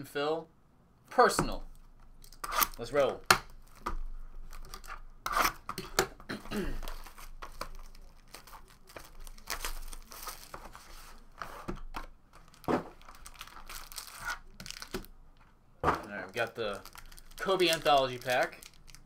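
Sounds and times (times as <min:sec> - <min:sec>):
packaging crinkling and tearing: 0:06.8 - 0:11.3, 0:12.4 - 0:15.1, 0:16.4 - 0:19.0.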